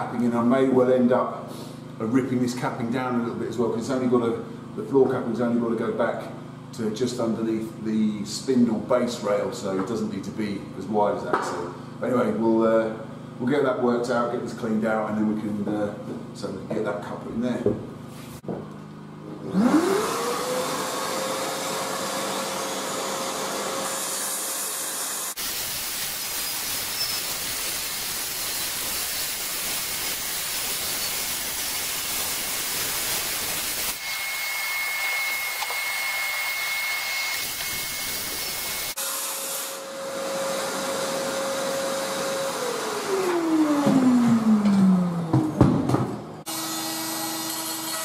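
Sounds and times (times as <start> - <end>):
circular saw whining: 19.5 - 45.5, 46.4 - 48.0.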